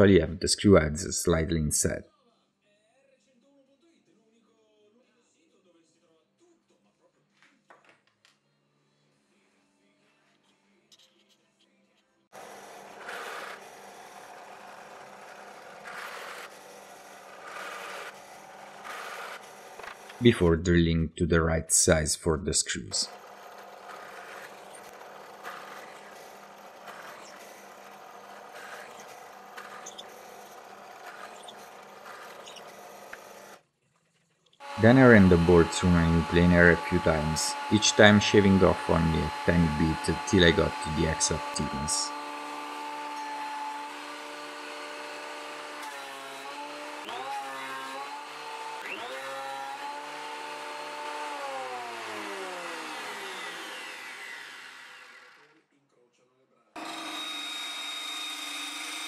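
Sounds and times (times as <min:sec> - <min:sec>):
drill press boring into wood: 0:12.4 - 0:20.3, 0:23.1 - 0:33.6, 0:34.6 - 0:55.5, 0:56.8 - 0:59.0
thickness planer winding down: 0:12.4 - 0:20.5, 0:23.0 - 0:33.6, 0:34.6 - 0:55.5, 0:56.8 - 0:59.0.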